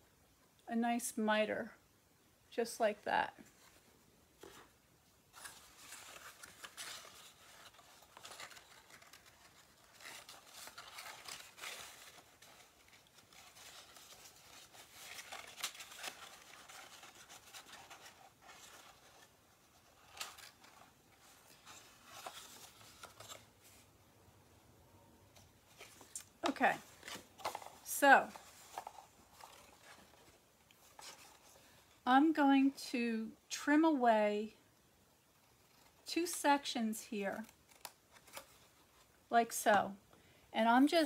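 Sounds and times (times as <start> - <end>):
cardstock rustling and scraping: 3.4 - 23.9, 25.4 - 31.7.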